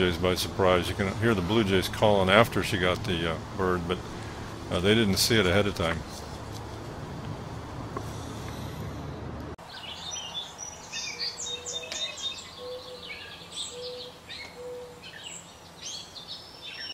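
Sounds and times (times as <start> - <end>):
outdoor background rumble: 0.0 - 10.9
small birds chirping and trilling: 9.6 - 16.9.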